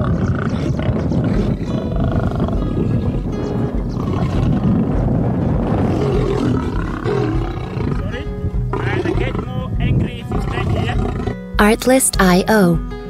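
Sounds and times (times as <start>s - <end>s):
lion roaring: 0.0s - 3.2s, 3.9s - 9.6s, 10.2s - 11.4s
background music: 1.2s - 13.0s.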